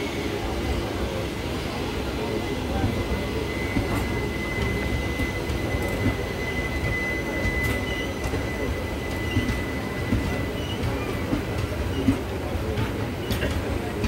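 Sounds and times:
train wheel rumble: 0.0s - 14.0s
high-pitched wheel squeal: 3.2s - 11.2s.

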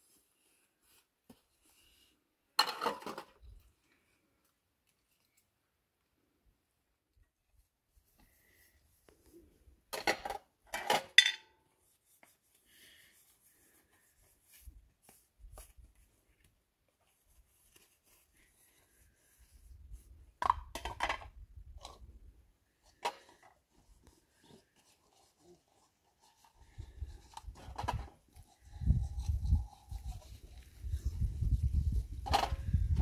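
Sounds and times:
faint handling noises: 3.1s - 6.2s.

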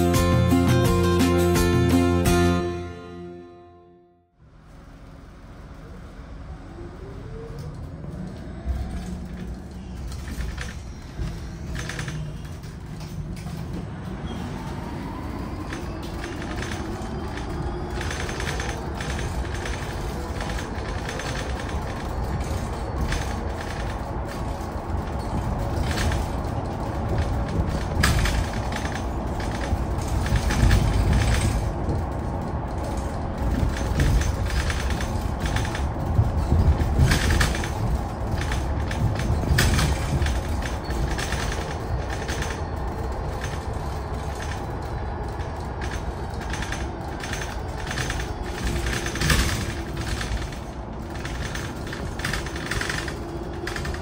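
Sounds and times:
bus road rumble: 0.0s - 54.0s
body rattles and knocks: 16.2s - 44.8s.

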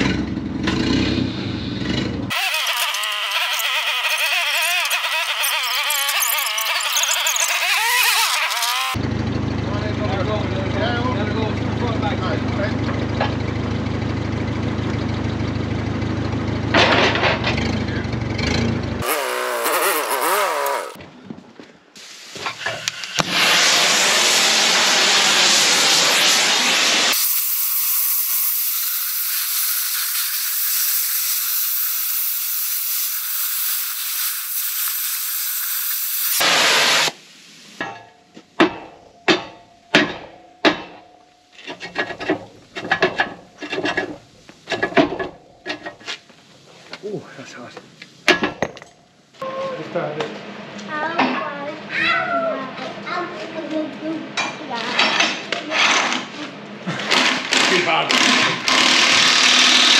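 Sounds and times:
loud rushing hiss: 22.0s - 27.5s, 35.4s - 37.7s
hammer striking steel: 37.8s - 41.2s.

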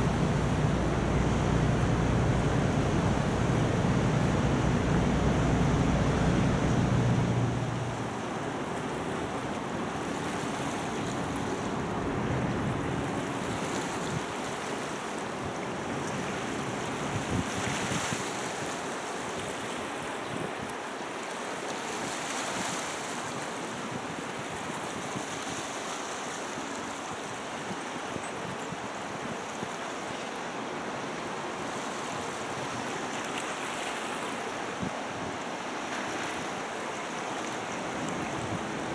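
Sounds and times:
wind rushing: 0.0s - 8.2s
water lapping: 0.0s - 11.9s, 35.5s - 38.9s
low boat engine hum: 0.0s - 13.7s, 36.2s - 38.9s.

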